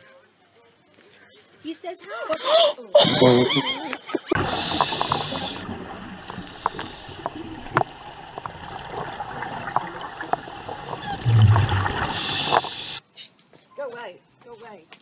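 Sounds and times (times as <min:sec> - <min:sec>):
underwater wash: 0:04.2 - 0:13.0
regulator bubbles gurgling: 0:04.3 - 0:13.0
sharp underwater clicks: 0:04.3 - 0:13.0.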